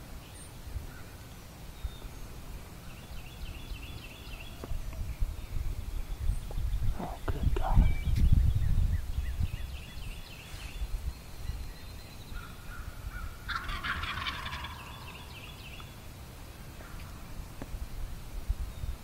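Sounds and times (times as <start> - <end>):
turkey gobbling: 12.4 - 15.5.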